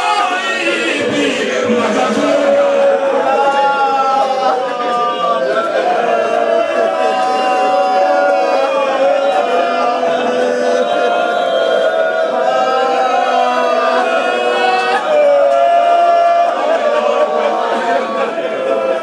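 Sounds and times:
man chanting verse: 0.0s - 5.8s.

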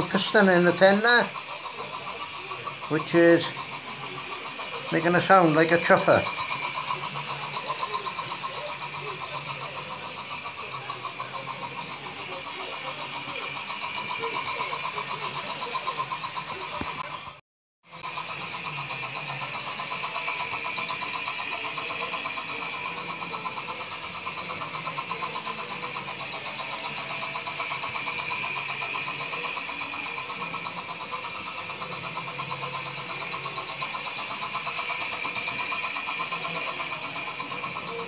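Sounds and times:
fast chuffing: 0.0s - 38.0s
small electric motor whirring: 0.0s - 38.0s
wheels rolling on rails: 0.0s - 38.0s.

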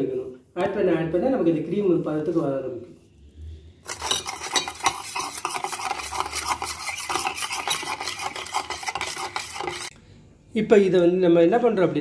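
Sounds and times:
spoon beating in metal saucepan: 3.9s - 9.9s.

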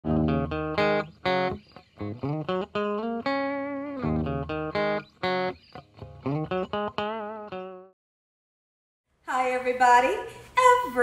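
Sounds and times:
instrumental melodic lead line: 0.1s - 7.9s.

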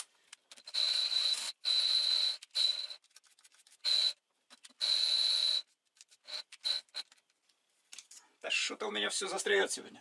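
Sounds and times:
cordless drill whining: 0.6s - 3.0s, 3.8s - 4.2s, 4.8s - 5.7s, 6.3s - 7.0s.

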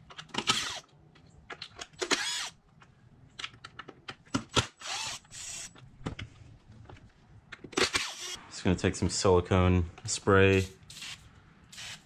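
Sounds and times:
power driver spinning screws: 4.8s - 5.7s.

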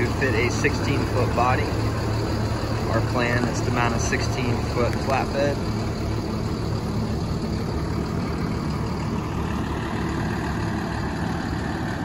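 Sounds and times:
diesel engine idling: 0.0s - 12.0s.

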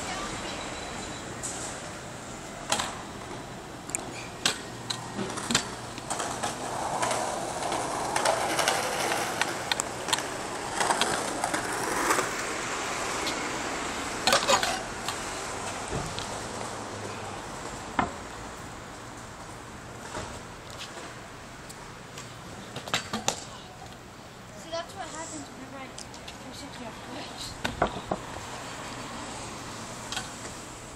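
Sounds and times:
scooter deck clacking on pavement: 3.9s - 12.5s
scooter wheels rolling hiss: 4.0s - 17.8s, 22.5s - 25.7s.

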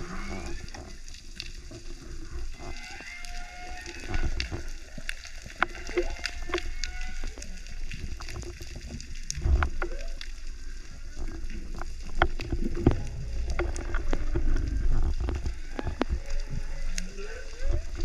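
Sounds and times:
underwater rumble of moving water: 0.0s - 18.0s
underwater clicks and pops: 3.9s - 10.5s, 11.5s - 18.0s.

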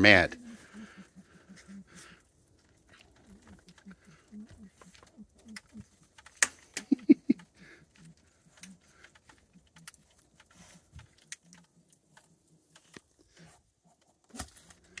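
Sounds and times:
animal grunts: 0.3s - 6.0s.

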